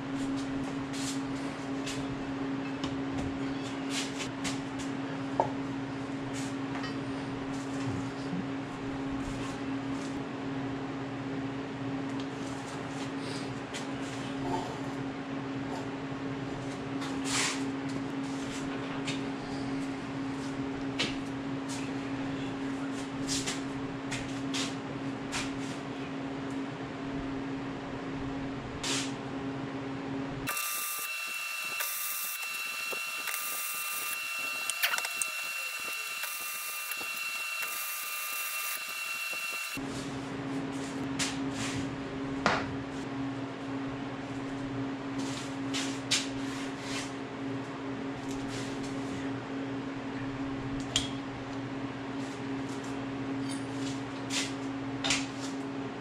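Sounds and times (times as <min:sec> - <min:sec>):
arc welding crackling hiss: 0:30.5 - 0:39.8.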